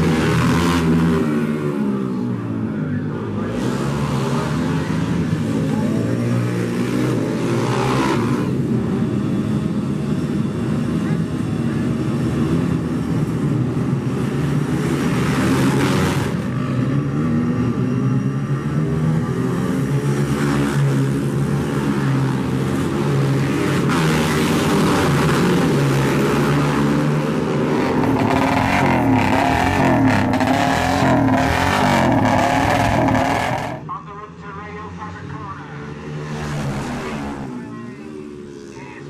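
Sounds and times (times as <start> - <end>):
motorcycle engine revving: 0.0 - 2.0, 22.3 - 33.9
pit bikes revving past: 23.4 - 33.9.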